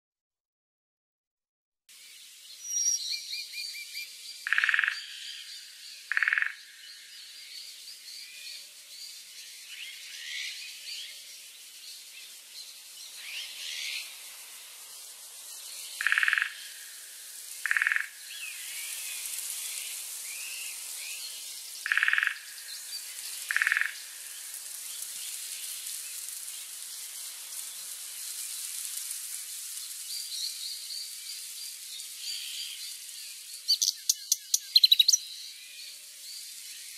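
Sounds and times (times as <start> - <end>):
birds and insects chirping: 2.0 - 36.9
frog croaking: 4.5 - 5.1, 6.1 - 6.6, 16.0 - 16.7, 17.6 - 18.2, 21.8 - 22.5, 23.5 - 24.0.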